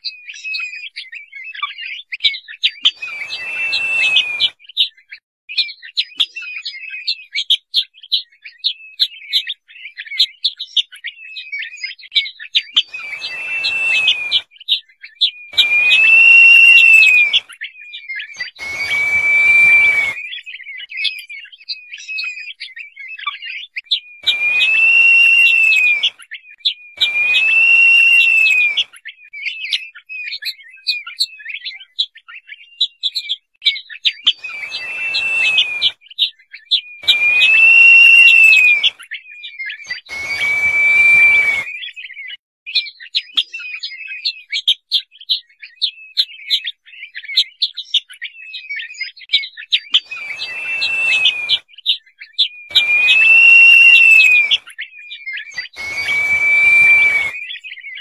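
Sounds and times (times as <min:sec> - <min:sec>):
bird whistled notes: 0:00.2 - 0:07.0, 0:11.2 - 0:23.2, 0:23.9 - 0:31.8, 0:34.2 - 0:42.4, 0:48.5 - 0:58.0
rapid short chirps: 0:03.0 - 0:04.5, 0:12.8 - 0:14.4, 0:15.6 - 0:17.4, 0:18.4 - 0:20.2, 0:24.2 - 0:26.1, 0:27.0 - 0:28.8, 0:34.4 - 0:35.9, 0:37.0 - 0:38.9, 0:39.9 - 0:41.7, 0:50.0 - 0:51.6, 0:52.7 - 0:54.6, 0:55.6 - 0:57.5.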